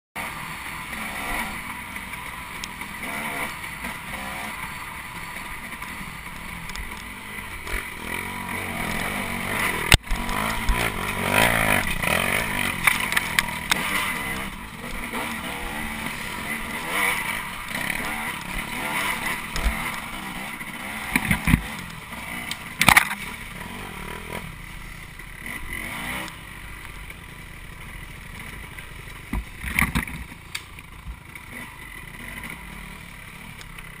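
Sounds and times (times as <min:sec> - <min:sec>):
dirt bike engine revving: 0:00.2 - 0:34.0.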